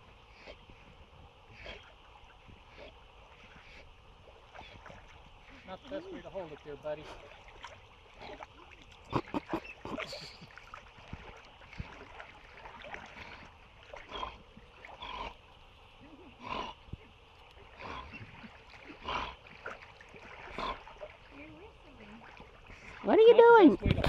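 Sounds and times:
dog splashing in water: 4.3s - 15.5s, 17.5s - 24.0s.

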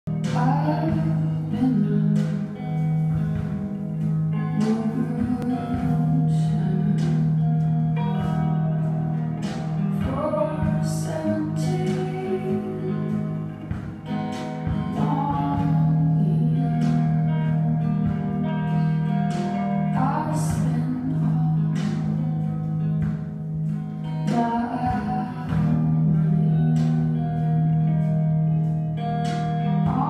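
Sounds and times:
person singing over guitar: 0.1s - 30.0s.

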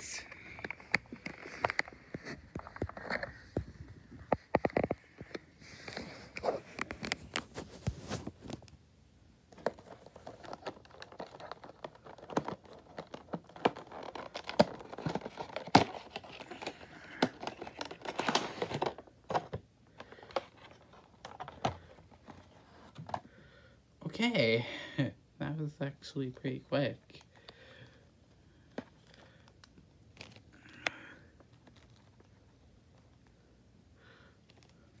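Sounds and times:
packaging crinkling and tearing: 9.6s - 23.0s.

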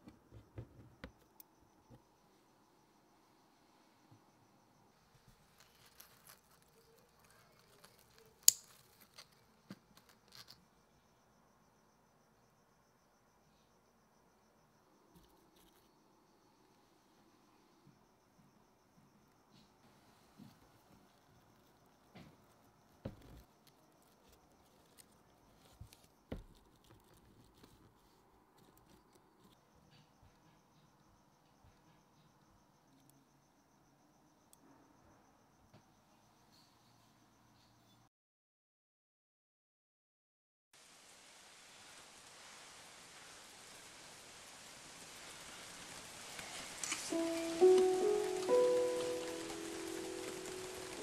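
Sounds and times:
leaves rustling: 5.3s - 10.6s, 40.8s - 51.0s
scissors snipping stem: 7.8s - 9.3s.

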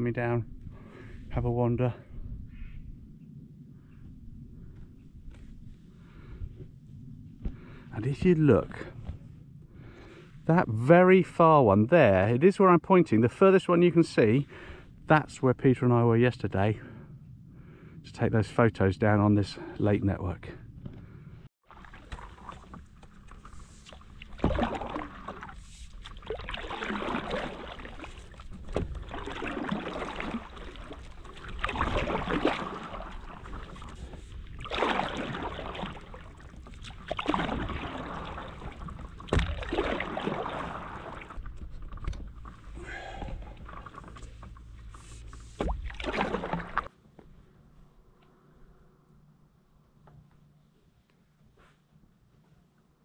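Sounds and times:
steady low rumble: 0.0s - 11.0s, 14.4s - 19.7s
paddle swishing through water: 21.6s - 47.0s.

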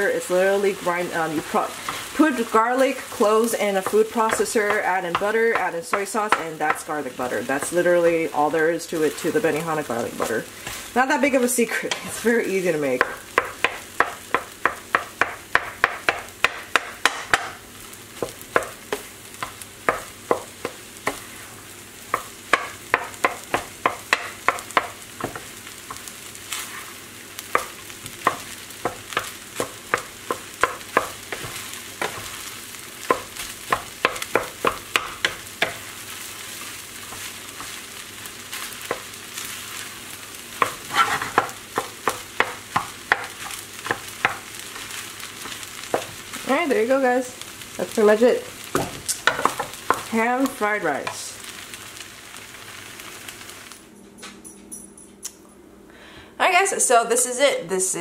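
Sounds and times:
food sizzling: 0.0s - 54.0s
wooden spatula scraping frying pan: 0.3s - 17.5s, 18.2s - 46.9s.

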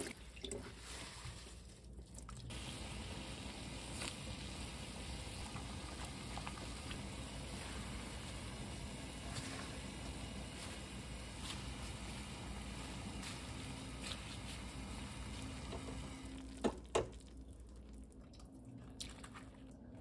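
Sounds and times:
water boiling in a pan: 0.0s - 18.5s
wet sprouts in metal colander: 2.5s - 4.8s, 5.4s - 15.5s.

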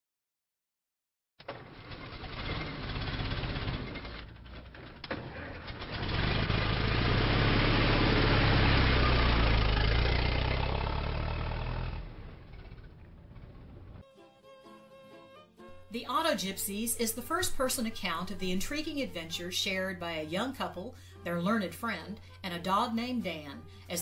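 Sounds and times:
car engine starting and running: 1.4s - 14.0s.

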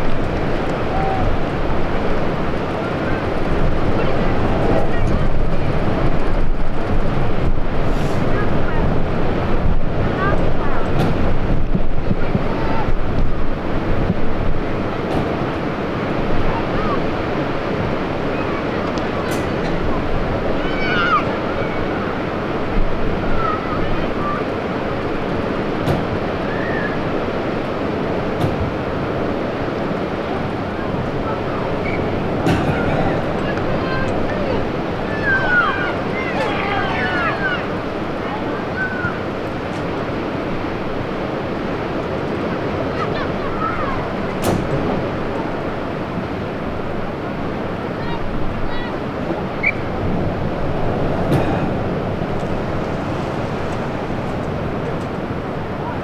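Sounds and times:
distant voices calling: 0.0s - 56.0s
wind buffeting microphone: 0.0s - 56.0s
faint distant calls: 29.8s - 40.5s, 47.8s - 56.0s.

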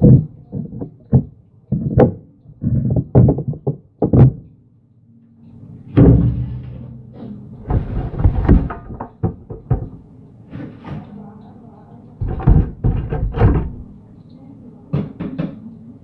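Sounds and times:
kitchen items knocking and thudding: 0.0s - 4.5s, 6.0s - 11.0s, 12.2s - 13.9s.

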